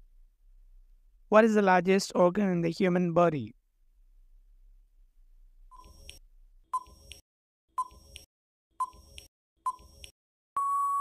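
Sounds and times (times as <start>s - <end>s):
long steady beep: 10.6s - 11.0s.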